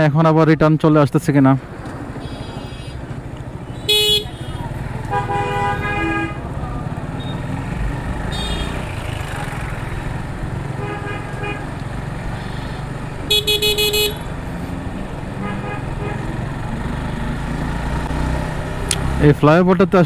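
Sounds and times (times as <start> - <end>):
motorcycle engine and road rumble: 0.8 - 20.0
vehicle horns tooting: 2.2 - 3.0, 3.7 - 6.5, 8.2 - 9.0, 10.8 - 11.7, 12.4 - 14.3, 15.4 - 16.3.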